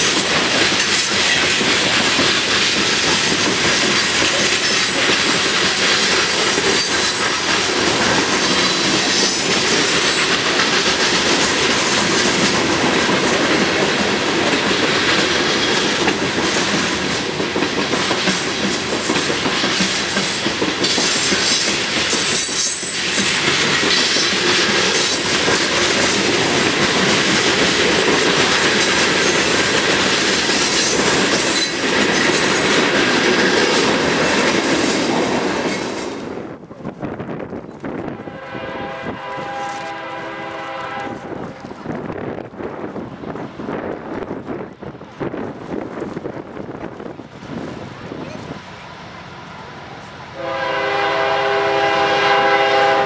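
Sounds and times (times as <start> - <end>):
wheels clicking over rail joints: 0.0 - 38.0
freight train rumbling past: 0.0 - 53.0
high wheel squeal: 4.4 - 7.5.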